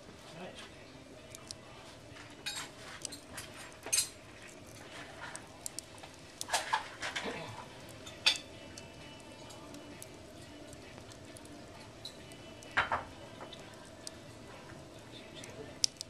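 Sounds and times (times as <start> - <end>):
wood fire crackling and popping: 0.0 - 16.0.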